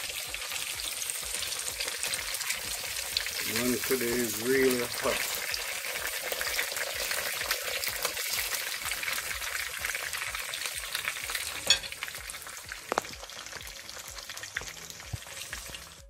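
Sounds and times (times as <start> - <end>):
flatbread sizzling in oil: 0.0 - 16.0
short clink: 11.6 - 12.0.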